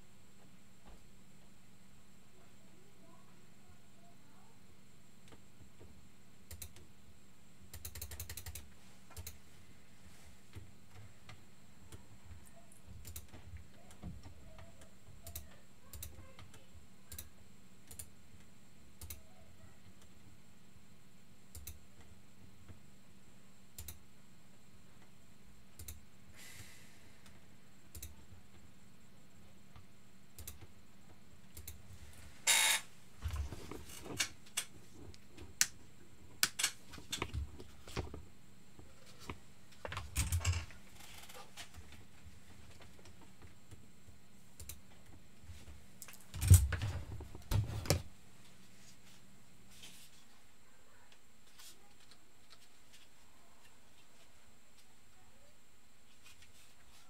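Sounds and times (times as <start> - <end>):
computer keyboard clicks: 6.5 - 6.9, 7.7 - 9.4, 17.9 - 18.1, 21.5 - 21.8, 23.8 - 24.0, 25.8 - 26.0, 30.4 - 30.7.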